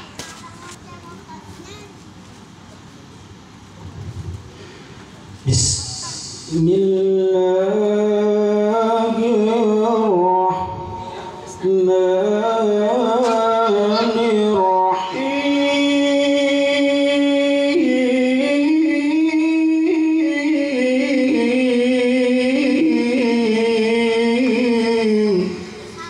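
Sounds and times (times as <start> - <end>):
man reciting melodically: 5.4 - 26.0.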